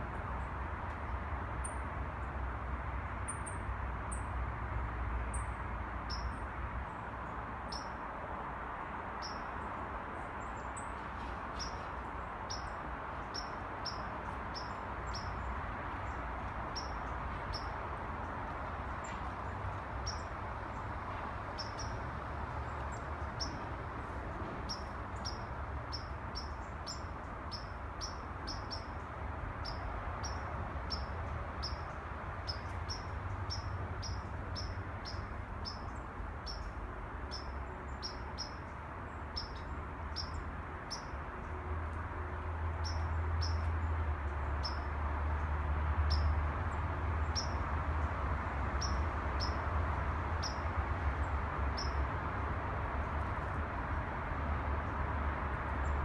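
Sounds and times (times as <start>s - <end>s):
city noise hum: 0.0s - 56.0s
bird chirping: 16.0s - 17.8s, 20.0s - 20.3s, 21.6s - 22.0s, 24.7s - 29.0s, 29.6s - 38.6s, 42.8s - 43.8s, 47.3s - 47.6s, 48.8s - 49.6s, 50.4s - 50.7s, 51.7s - 52.0s.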